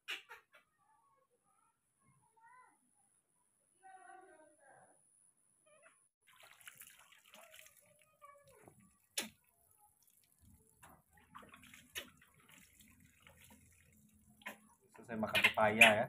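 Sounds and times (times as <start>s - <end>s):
water splashing and dripping: 6.2s - 16.0s.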